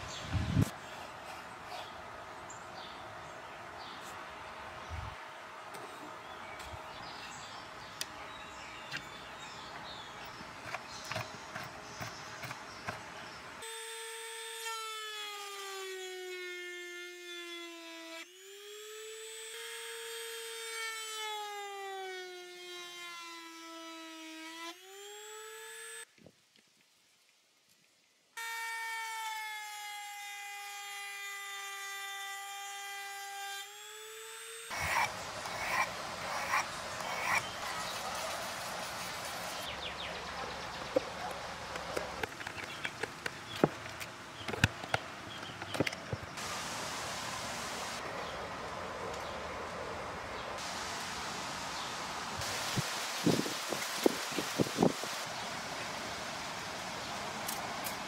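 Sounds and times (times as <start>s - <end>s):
rotary tool whining: 28.4s - 38.2s.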